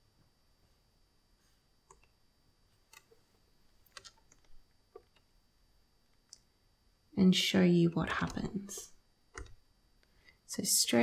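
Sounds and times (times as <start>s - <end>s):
laptop clicks: 3.9s - 5.3s.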